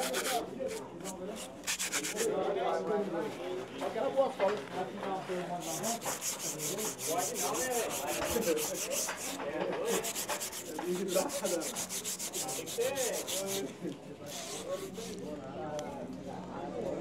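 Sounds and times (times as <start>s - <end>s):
rope rubbed with rasping strokes: 0.0s - 2.3s, 5.6s - 15.2s.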